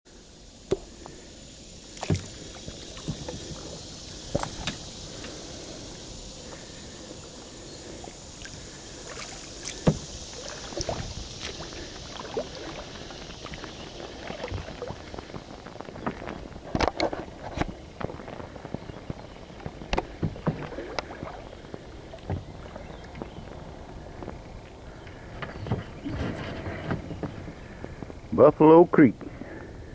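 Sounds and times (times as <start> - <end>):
faint steady hiss: 0.1 - 29.9
water splashes: 0.6 - 24.9
paddle knocks: 2.0 - 2.4, 4.3 - 4.8, 9.1 - 11.6, 19.6 - 21.4.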